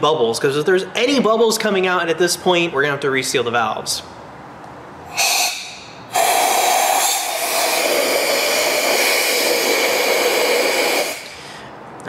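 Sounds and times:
compressed air hissing: 0:05.1 - 0:11.8.

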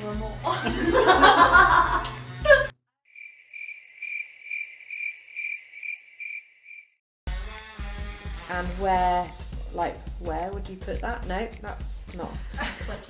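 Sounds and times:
woman laughing hard: 0:00.5 - 0:02.7, 0:12.6 - 0:13.0
cricket chirping sound effect: 0:03.1 - 0:07.0.

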